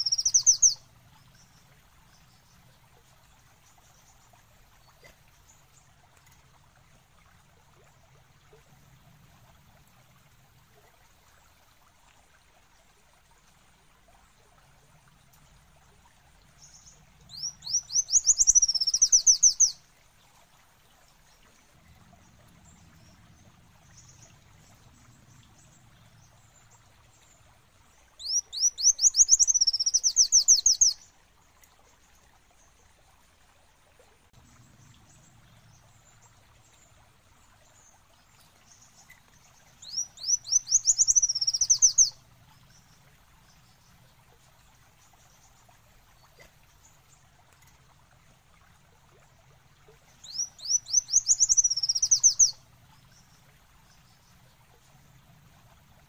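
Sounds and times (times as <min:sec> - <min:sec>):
bird singing trilling song: 0:00.0 - 0:02.6, 0:16.6 - 0:19.8, 0:28.2 - 0:31.1, 0:38.7 - 0:42.9, 0:50.2 - 0:54.4.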